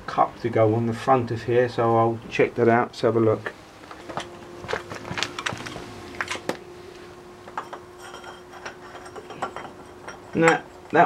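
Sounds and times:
faint steady hum: 0.0 - 11.0
metal wrench clinks and knocks: 7.6 - 11.0.

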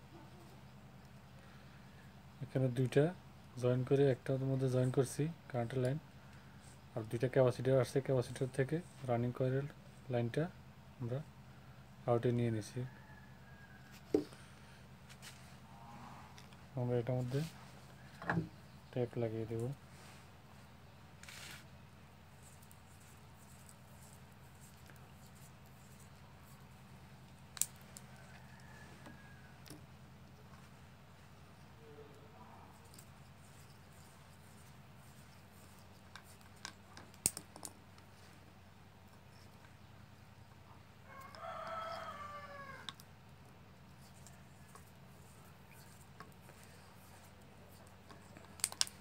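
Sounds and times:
steady low hum: 0.0 - 49.0
rooster crowing: 12.9 - 14.3, 28.0 - 29.8, 41.0 - 43.0.

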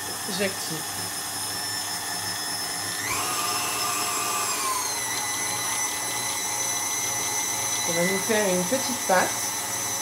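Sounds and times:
stand mixer motor whining: 0.0 - 10.0.

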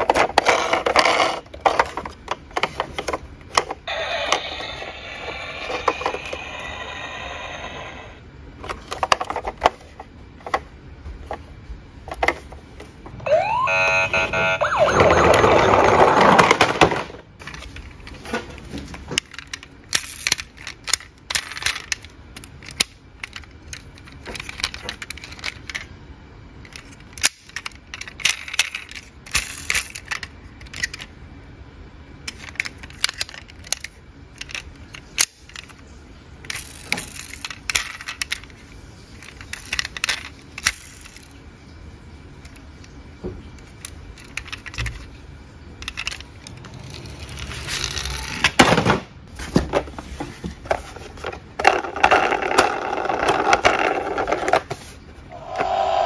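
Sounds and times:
toy cars clicking and rattling: 0.0 - 7.3, 19.2 - 25.9, 26.6 - 31.1, 32.2 - 35.8, 36.4 - 38.6, 39.2 - 41.4, 43.6 - 45.1, 45.8 - 48.6, 51.2 - 54.8
toy siren wail: 3.9 - 8.1, 13.2 - 15.9
loud rough noise: 55.3 - 56.0.

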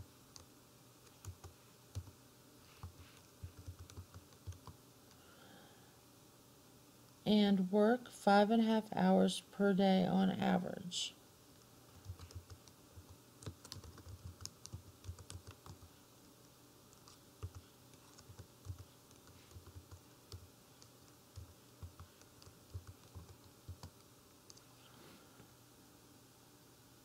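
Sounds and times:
typing on a keyboard: 0.3 - 2.2, 2.8 - 5.2, 12.0 - 15.9, 16.9 - 24.7.

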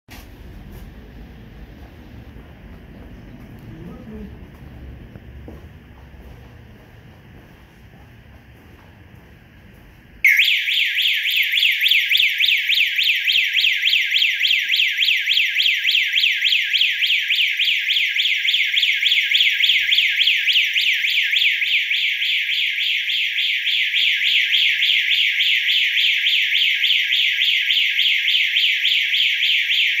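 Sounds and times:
security alarm siren warbling: 10.2 - 30.0.

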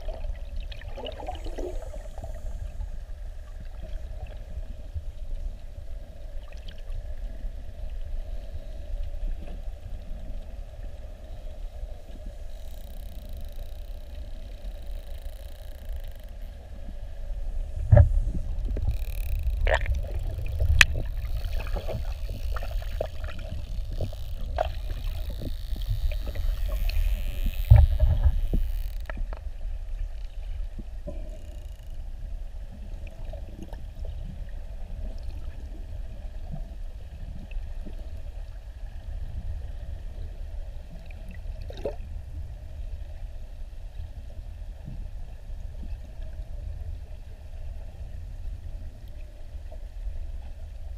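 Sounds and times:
low underwater rumble: 0.0 - 50.9
underwater clicks and knocks: 17.8 - 29.5.

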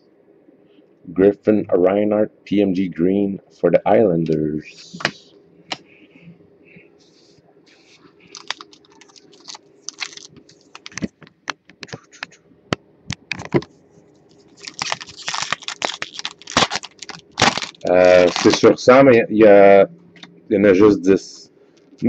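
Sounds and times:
foil pack crinkling: 8.2 - 11.3, 14.3 - 18.8
cards clicking and rustling: 8.3 - 12.4, 14.6 - 18.7.

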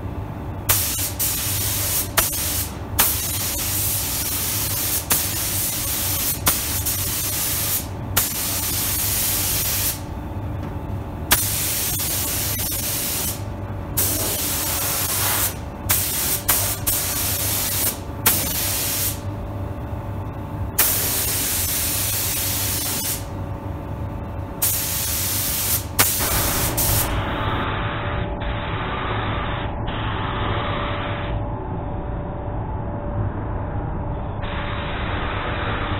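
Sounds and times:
steady low hum: 0.0 - 35.9
spray gun air hiss: 0.7 - 10.1, 11.3 - 13.4, 14.0 - 19.2, 20.8 - 23.3, 24.6 - 27.2.

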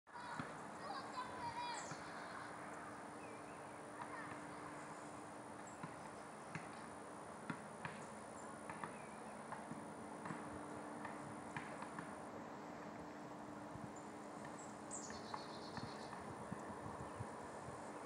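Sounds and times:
steady background hum: 0.1 - 18.0
basketball bouncing on asphalt: 5.8 - 6.8, 7.4 - 8.0, 8.7 - 12.1.

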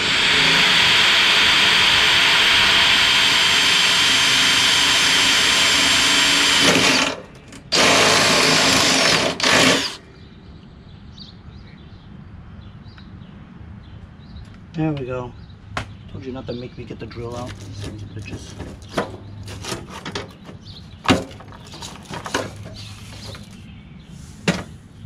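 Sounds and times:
cordless drill on steel: 0.0 - 10.0.

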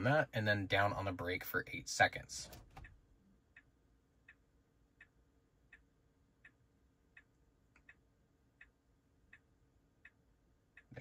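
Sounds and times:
turn signal ticking: 2.7 - 11.0.

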